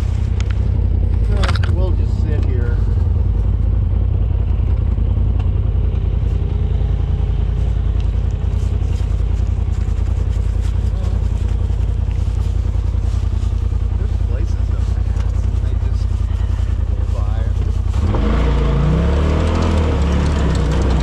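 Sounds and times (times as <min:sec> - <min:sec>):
vehicle engine droning: 0:00.0 - 0:21.0
clattering ticks: 0:19.4 - 0:21.0.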